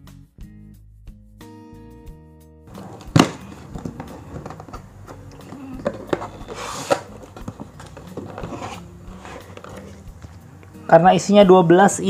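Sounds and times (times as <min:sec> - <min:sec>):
cards tapping and clicking: 0:02.7 - 0:10.3
cardboard box being opened: 0:02.7 - 0:10.4
scraping rustle: 0:02.7 - 0:10.4.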